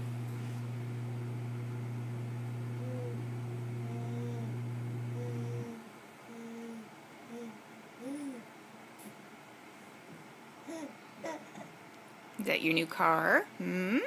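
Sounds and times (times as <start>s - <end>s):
steady low hum: 0.0s - 10.0s
baby cooing: 2.8s - 3.2s, 3.8s - 8.5s, 10.6s - 11.7s.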